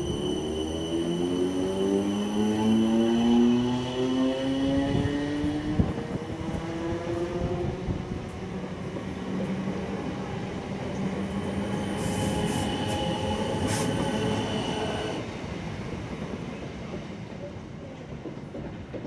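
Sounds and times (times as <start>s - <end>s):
high-pitched squeals: 0.0s - 4.2s, 11.0s - 15.2s
train wheels rumbling on rail: 0.0s - 19.0s.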